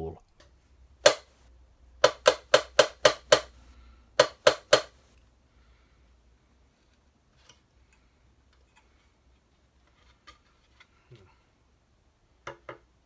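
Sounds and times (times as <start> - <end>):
mallet knocking on plastic part: 2.0 - 3.5, 4.2 - 4.9.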